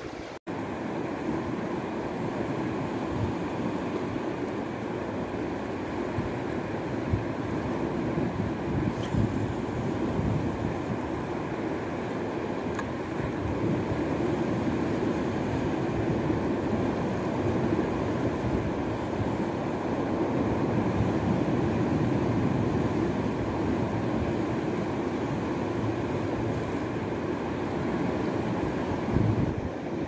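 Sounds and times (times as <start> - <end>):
waves breaking on shore: 0.0 - 30.0
wind buffeting microphone: 7.0 - 12.0, 28.6 - 30.0.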